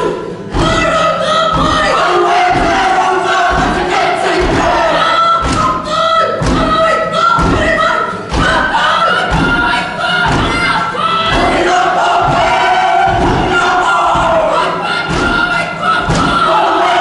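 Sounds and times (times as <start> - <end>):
group chanting and shouting: 0.0 - 17.0
stamping feet and slaps: 1.5 - 6.8, 7.4 - 17.0.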